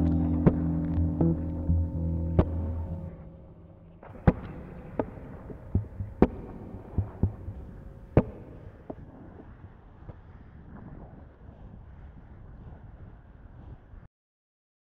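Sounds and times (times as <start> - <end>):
wind rushing over camera: 6.4 - 14.1.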